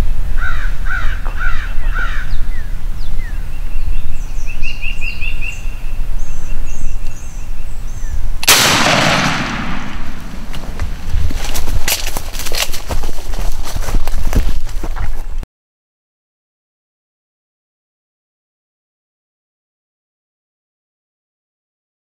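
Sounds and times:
birds calling: 0:00.4 - 0:11.2
loud shotgun blast: 0:08.4 - 0:11.1.

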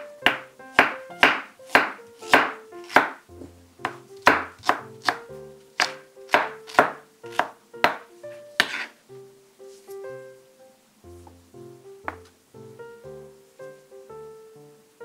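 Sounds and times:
soft background music: 0:00.0 - 0:15.0
knife chopping on wooden board: 0:00.3 - 0:05.2, 0:05.8 - 0:08.9.

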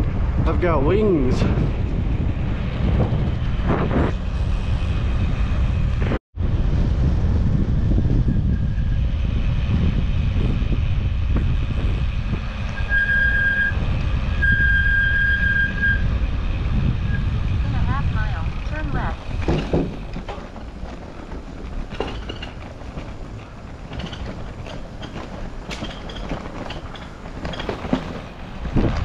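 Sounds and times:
wind rushing over microphone: 0:00.0 - 0:29.0
high steady squeal: 0:07.7 - 0:11.1, 0:11.8 - 0:17.5.

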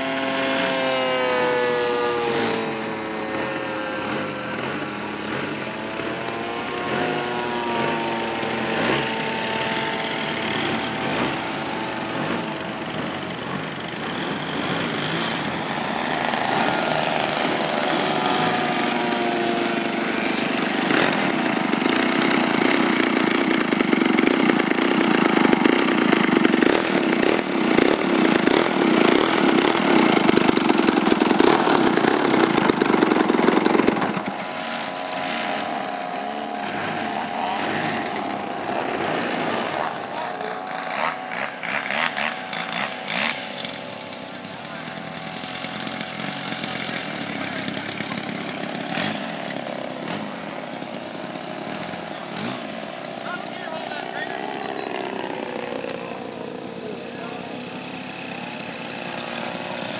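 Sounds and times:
model plane engines buzzing: 0:00.0 - 0:59.9.

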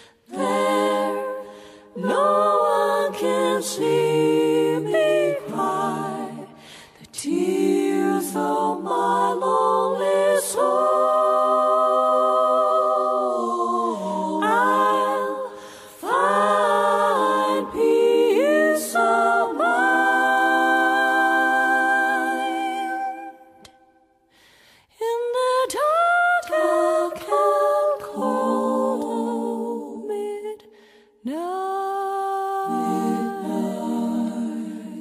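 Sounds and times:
voices singing a cappella: 0:00.0 - 0:24.0, 0:24.9 - 0:35.0.

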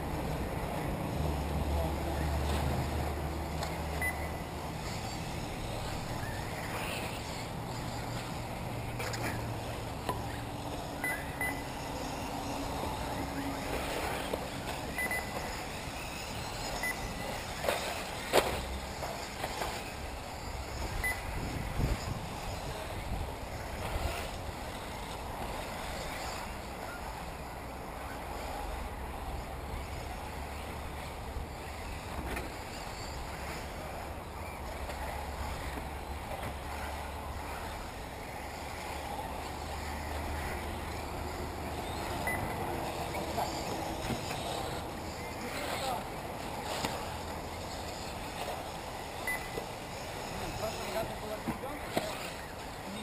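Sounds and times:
electric toy cars whirring: 0:00.0 - 0:53.0
rc buggies racing: 0:00.0 - 0:53.0
short high beeps: 0:04.0 - 0:04.4, 0:11.0 - 0:11.7, 0:14.9 - 0:15.4, 0:16.8 - 0:17.1, 0:21.0 - 0:21.2, 0:42.2 - 0:42.6, 0:49.2 - 0:49.6
wind rumble on microphone: 0:20.6 - 0:24.5.

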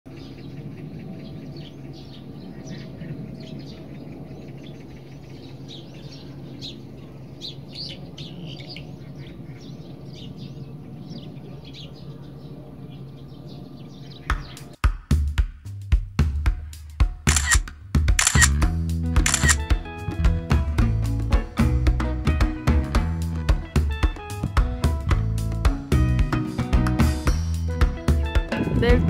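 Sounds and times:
small birds chirping: 0:00.1 - 0:14.8.

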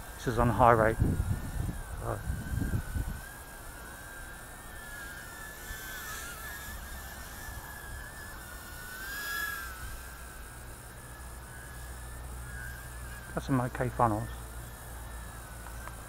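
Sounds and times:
wind rumble on microphone: 0:00.0 - 0:03.7
quadcopter propellers whining: 0:00.0 - 0:16.0.

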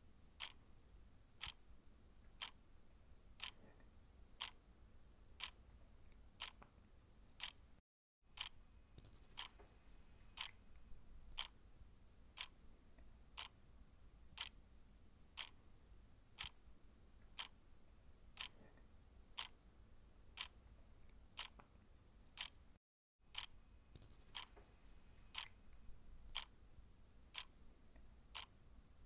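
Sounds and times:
clock ticking: 0:00.4 - 0:00.6, 0:01.4 - 0:01.6, 0:02.4 - 0:02.6, 0:03.4 - 0:03.7, 0:08.4 - 0:09.7, 0:10.4 - 0:11.6, 0:12.4 - 0:12.6, 0:13.4 - 0:13.6, 0:14.4 - 0:14.6, 0:15.4 - 0:15.6, 0:16.4 - 0:16.6, 0:17.4 - 0:17.6, 0:18.4 - 0:18.7, 0:19.4 - 0:19.6, 0:20.4 - 0:20.6, 0:21.4 - 0:21.7, 0:22.4 - 0:22.6, 0:23.3 - 0:24.7, 0:25.3 - 0:25.6, 0:26.2 - 0:26.5, 0:27.3 - 0:27.6, 0:28.3 - 0:28.6.

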